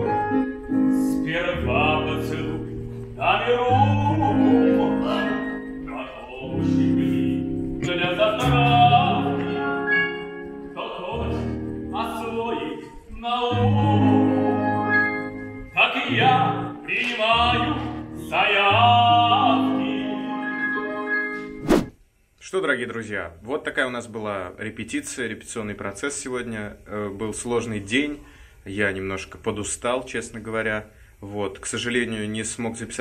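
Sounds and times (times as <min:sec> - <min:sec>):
instrumental backing track: 0:00.0 - 0:21.6.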